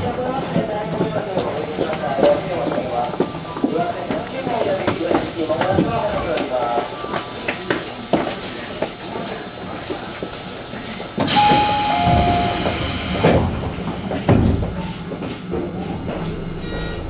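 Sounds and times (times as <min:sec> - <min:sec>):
train doors thumping shut: 0:11.2 - 0:16.4.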